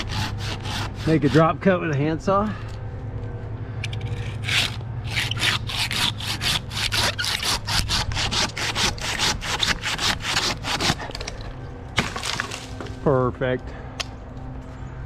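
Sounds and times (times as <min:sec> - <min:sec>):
handsaw cutting wood: 0:00.0 - 0:01.7, 0:04.2 - 0:11.2.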